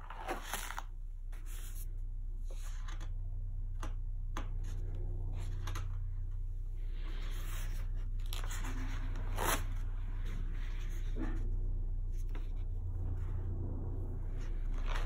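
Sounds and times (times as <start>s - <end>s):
paper pages turning: 0.0s - 1.8s, 5.4s - 6.0s, 7.0s - 11.4s
low hum: 0.0s - 15.0s.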